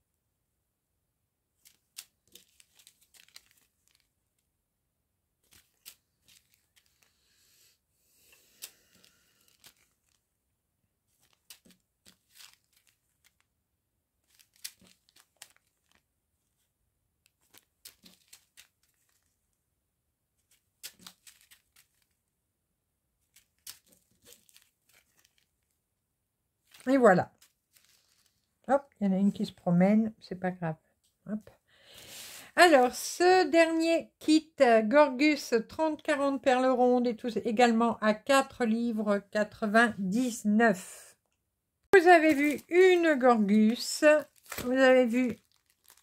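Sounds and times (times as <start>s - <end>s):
plastic bags crinkling: 1.6s - 4.4s, 5.4s - 7.2s, 8.3s - 10.4s, 11.0s - 13.5s, 14.2s - 19.5s, 20.4s - 22.2s, 23.2s - 25.8s, 26.6s - 28.5s, 42.0s - 46.0s.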